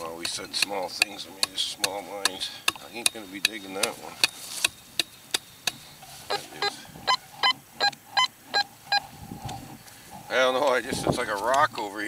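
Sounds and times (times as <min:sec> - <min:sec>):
metal detector clicks: 0:00.2 - 0:09.6
metal detector short beeps: 0:06.3 - 0:09.1.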